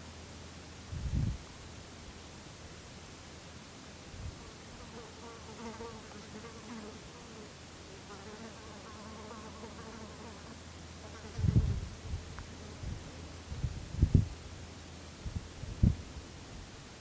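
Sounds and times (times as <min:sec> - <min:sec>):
flying insect buzzing: 0:04.4 - 0:13.0.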